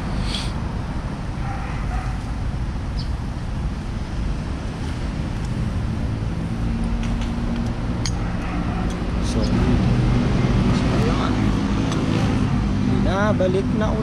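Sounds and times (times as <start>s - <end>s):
vehicle traffic: 0.0s - 14.0s.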